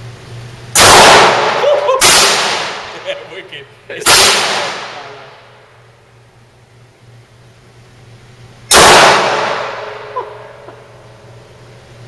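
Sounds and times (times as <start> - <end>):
pistol shots echoing: 0.8 - 3.0, 4.0 - 5.2, 8.7 - 10.5.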